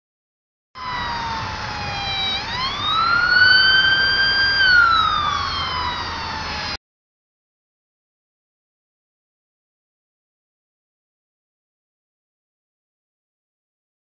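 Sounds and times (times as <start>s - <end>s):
emergency vehicle siren wailing: 0.8s - 6.8s.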